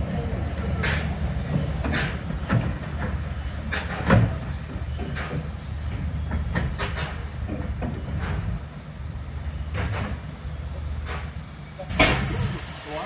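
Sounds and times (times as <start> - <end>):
train low rumble: 0.0 - 13.0
clanks and knocks: 0.8 - 8.6, 9.7 - 10.3, 11.0 - 12.3.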